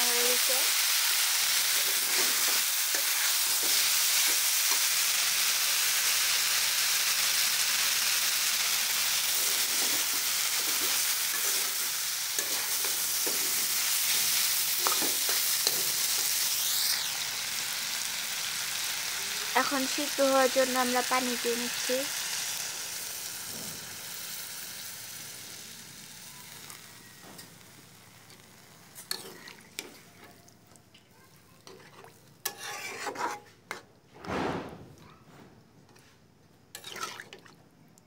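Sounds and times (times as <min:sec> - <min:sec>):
vegetables sizzling in hot oil: 0:00.0 - 0:33.5
metal spatula scraping pan: 0:09.4 - 0:16.2, 0:29.0 - 0:30.0, 0:31.7 - 0:33.9.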